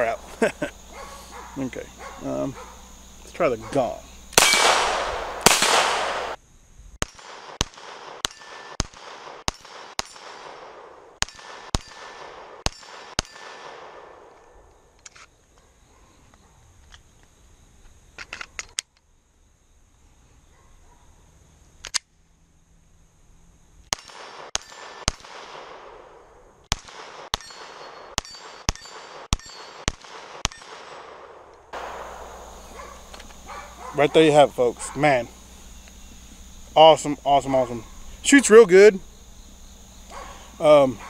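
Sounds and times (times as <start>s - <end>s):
pistol shots with ringing echo: 4.4s - 6.4s, 7.0s - 14.4s, 23.9s - 33.9s.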